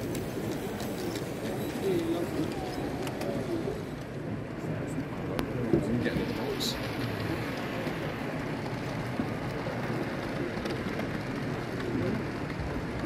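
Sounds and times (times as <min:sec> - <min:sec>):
faint ticks from wheels: 0:00.0 - 0:04.2
model train rumbling on track: 0:00.0 - 0:13.0.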